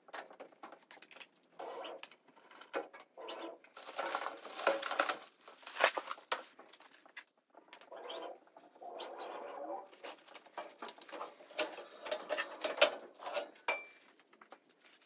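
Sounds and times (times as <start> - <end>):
plastic packaging rustling: 3.7 - 7.5, 9.9 - 15.0.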